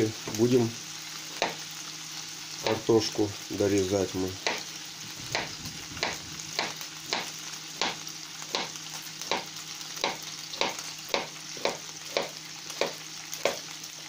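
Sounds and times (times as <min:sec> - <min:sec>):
meat sizzling in a frying pan: 0:00.0 - 0:14.0
knife chopping on a plate: 0:01.4 - 0:01.6, 0:04.4 - 0:04.6, 0:05.2 - 0:08.7, 0:09.3 - 0:13.6.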